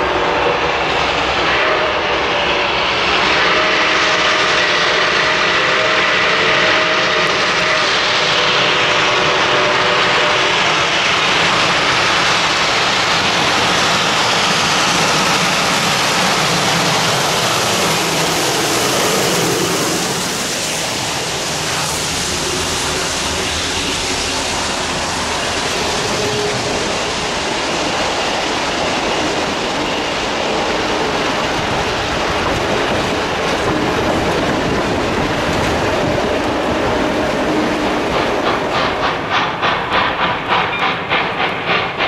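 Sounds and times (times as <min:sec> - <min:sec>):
diesel locomotives passing: 0:00.0 - 0:42.0
steam locomotive passing: 0:00.0 - 0:42.0
wheels clattering on rails: 0:10.0 - 0:42.0.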